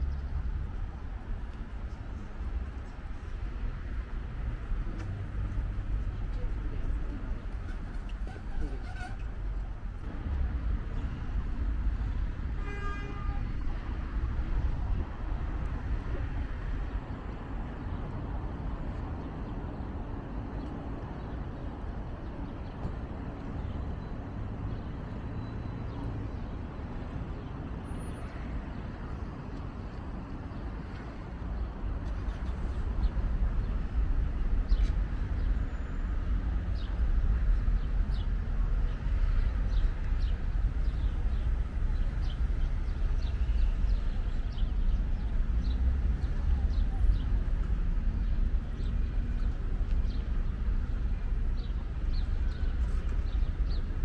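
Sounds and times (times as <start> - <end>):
city road traffic rumble: 0.0 - 54.0.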